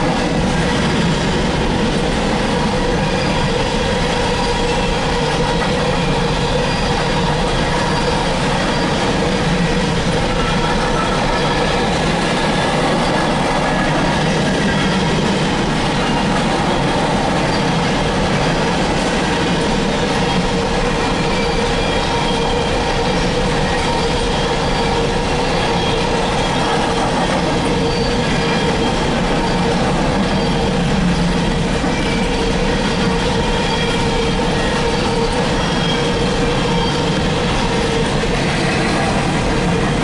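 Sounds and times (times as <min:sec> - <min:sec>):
freight train wheels rolling: 0:00.0 - 0:40.0
faint wheel squeal: 0:27.4 - 0:30.8.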